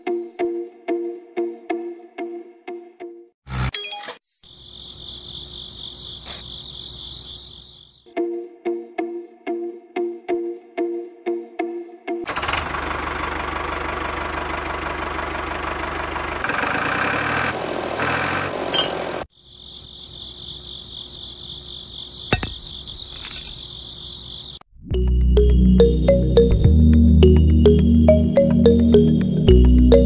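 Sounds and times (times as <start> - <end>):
music: 0.0 - 3.4, 8.1 - 12.3, 24.8 - 30.0.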